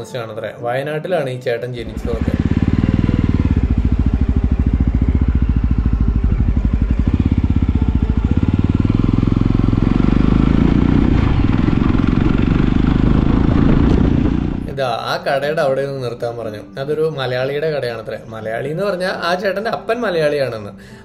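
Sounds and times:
motorcycle engine pulling away: 1.8s - 15.0s.

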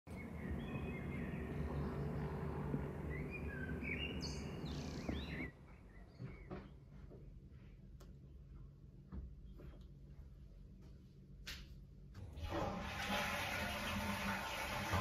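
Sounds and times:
birds chirping: 0.1s - 8.4s
distant traffic hum: 0.1s - 9.8s.

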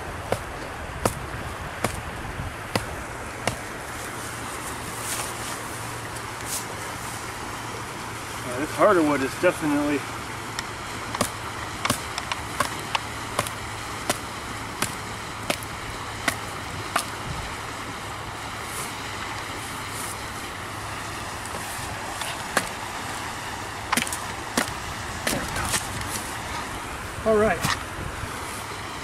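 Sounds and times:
machete chopping wood: 0.3s - 1.2s, 1.8s - 2.0s, 2.7s - 3.7s, 11.2s - 17.2s, 22.5s - 22.8s, 23.9s - 25.9s.

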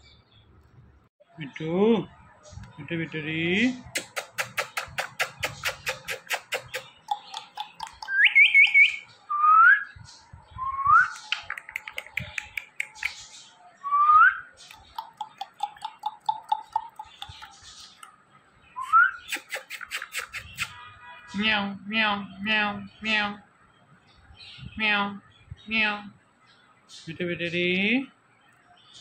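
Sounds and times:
kissing smacks: 3.9s - 8.2s, 11.2s - 13.2s, 19.3s - 20.8s.

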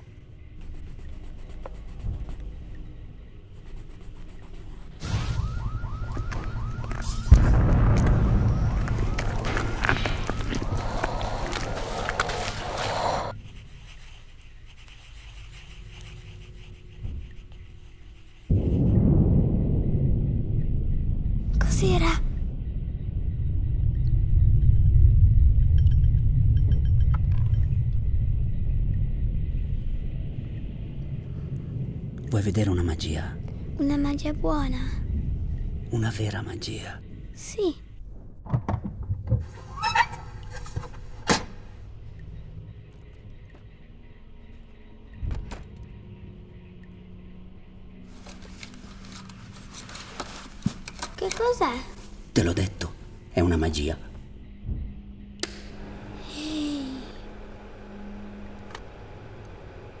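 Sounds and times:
low rumble: 4.6s - 13.4s, 15.7s - 51.1s, 51.9s - 60.0s
siren yelping wail: 5.0s - 13.3s.

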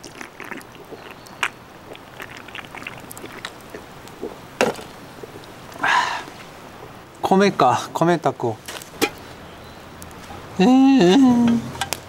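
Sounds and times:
person gulping from a can: 0.0s - 6.4s.

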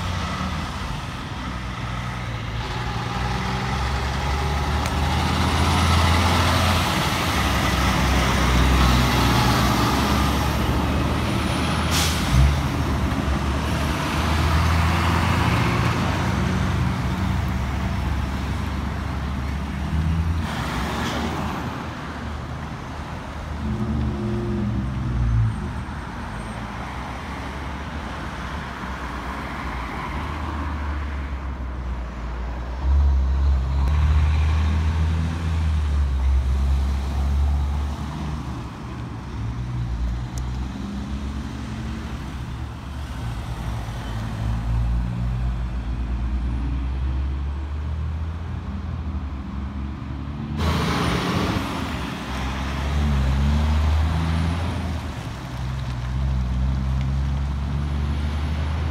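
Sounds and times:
truck diesel engines: 0.0s - 58.9s
air brake hiss: 11.8s - 12.5s.

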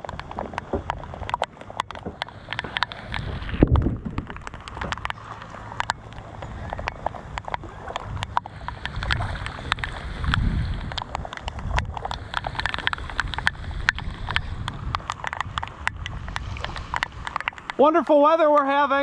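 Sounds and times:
paddle strokes: 0.0s - 19.0s
raindrops ticking on camera: 0.0s - 19.0s
water splashing: 0.0s - 19.0s
low rumble: 2.9s - 17.4s.

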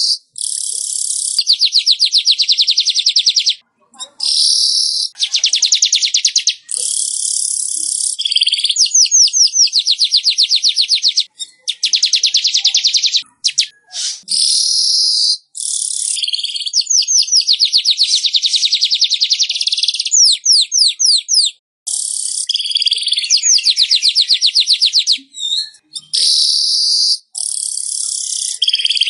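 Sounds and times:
bird chattering trills: 0.0s - 29.0s
quick sliding bird notes: 13.9s - 14.3s.

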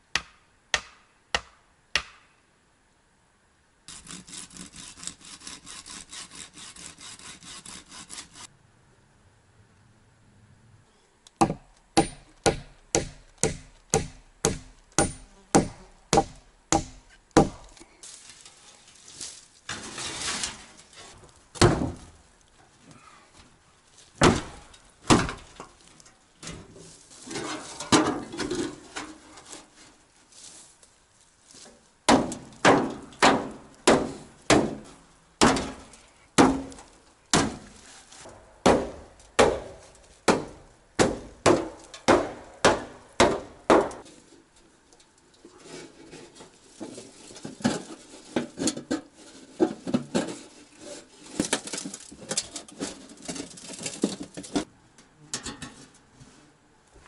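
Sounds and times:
axe chopping wood: 0.1s - 2.3s, 11.4s - 17.8s, 21.6s - 22.1s, 24.2s - 25.6s, 32.1s - 37.7s, 38.3s - 44.0s.

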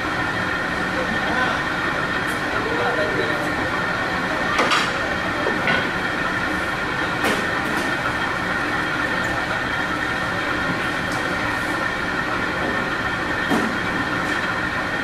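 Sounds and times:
mechanical hum and hiss: 0.0s - 15.0s.

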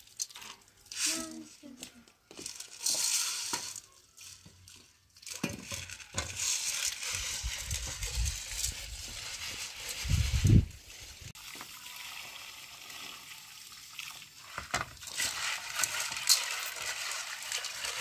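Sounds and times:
water sloshing in metal pot: 13.7s - 18.0s.

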